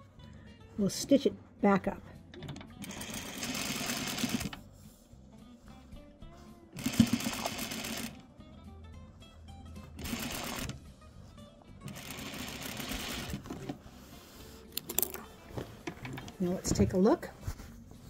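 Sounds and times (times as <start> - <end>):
sewing machine stitching: 2.8 - 4.6, 6.8 - 8.2, 10.0 - 10.8, 11.9 - 13.4.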